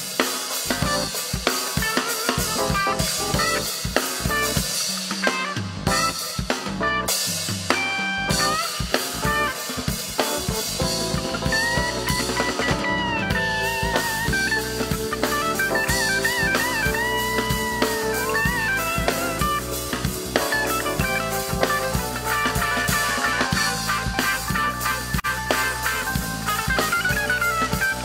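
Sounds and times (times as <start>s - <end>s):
drum kit groove: 0.0s - 28.0s
keyboard: 0.0s - 28.0s
bending lead melody: 0.7s - 1.2s, 1.9s - 5.0s, 5.6s - 28.0s
electric guitar: 7.7s - 28.0s.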